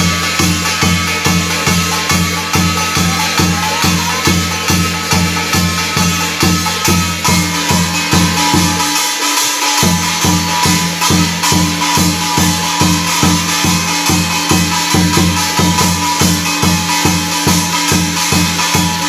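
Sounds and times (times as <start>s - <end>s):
barrel drum beaten with mallet: 0.0s - 19.0s
steady high tone: 0.6s - 15.2s.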